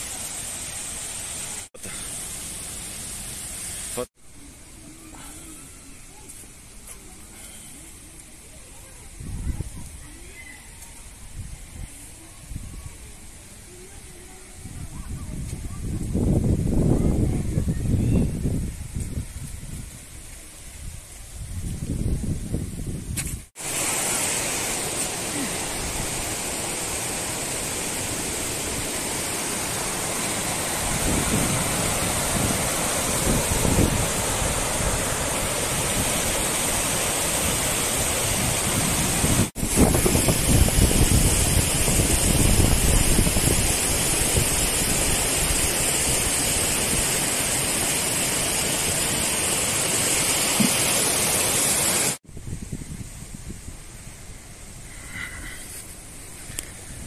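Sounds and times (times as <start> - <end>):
water rushing over rocks: 0.0 - 4.1, 23.5 - 52.2.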